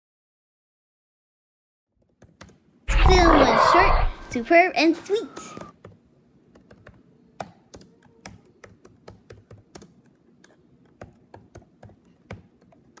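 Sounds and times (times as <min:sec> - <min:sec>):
computer keyboard key clicks: 0:05.8 - 0:13.0.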